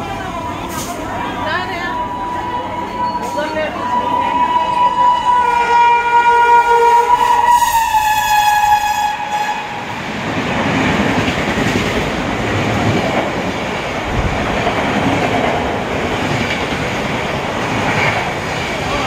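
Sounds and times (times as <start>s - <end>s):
train coaches rumbling and rattling: 0.0s - 19.0s
train horn: 2.0s - 10.0s.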